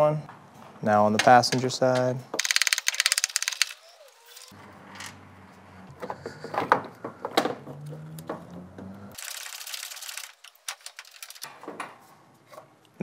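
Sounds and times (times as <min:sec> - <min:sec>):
ratchet wrench clicking: 0:02.4 - 0:03.8.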